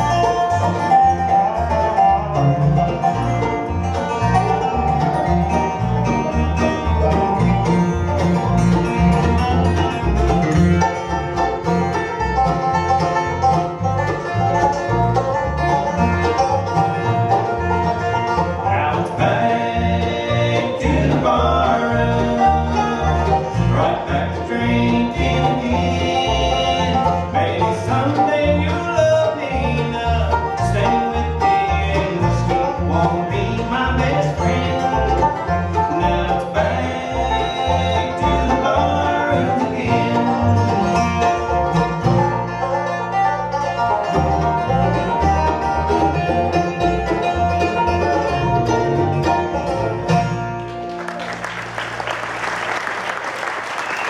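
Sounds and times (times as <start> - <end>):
bluegrass band playing live: 0.0 - 54.0
audience applause: 50.6 - 54.0.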